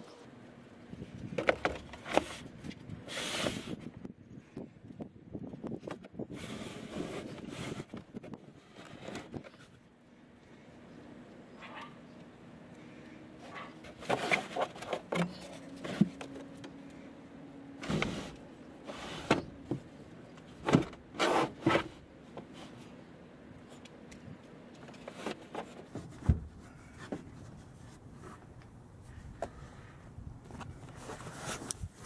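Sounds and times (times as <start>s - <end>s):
faint steady hum: 0.0s - 32.0s
knocks and rustles of handling: 13.5s - 16.8s, 23.6s - 28.6s.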